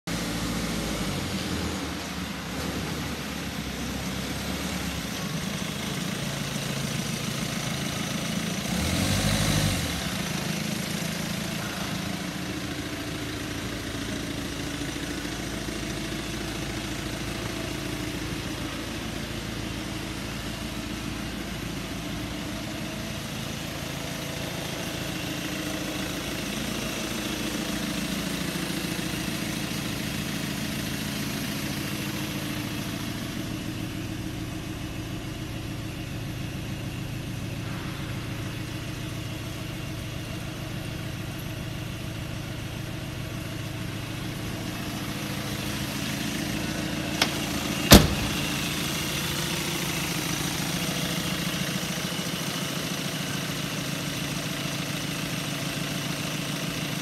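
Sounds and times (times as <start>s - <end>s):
van engine idling: 0.0s - 57.0s.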